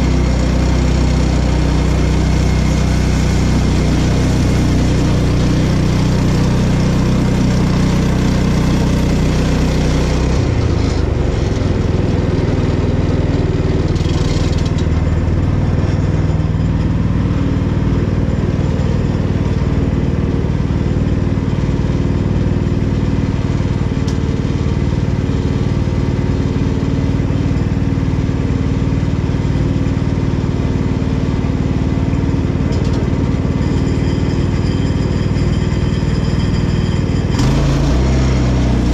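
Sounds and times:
sawmill gasoline engine running: 0:00.0 - 0:38.9.

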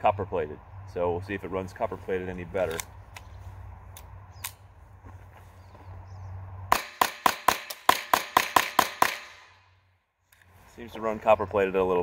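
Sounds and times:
pistol firing rapid shots: 0:06.7 - 0:09.5.

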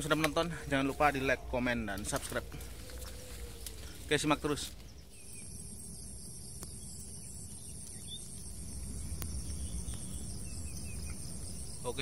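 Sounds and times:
insects shrilling: 0:00.0 - 0:12.0
low rumble: 0:04.8 - 0:11.9.

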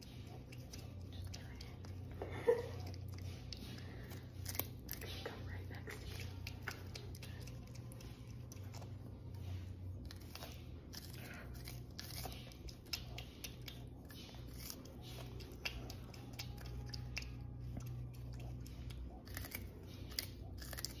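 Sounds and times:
low hum: 0:00.0 - 0:21.0
porcupine chewing corn: 0:00.0 - 0:21.0.

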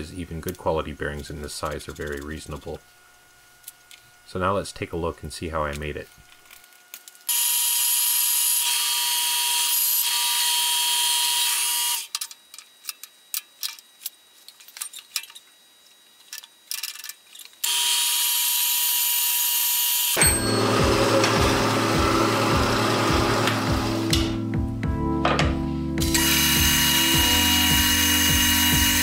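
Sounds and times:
bandsaw cutting metal: 0:07.3 - 0:12.1, 0:17.6 - 0:24.4, 0:26.0 - 0:29.0
music: 0:20.2 - 0:29.0.

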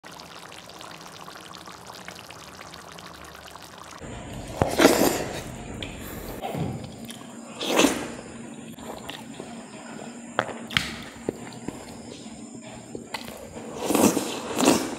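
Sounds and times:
liquid pouring: 0:00.0 - 0:06.4.

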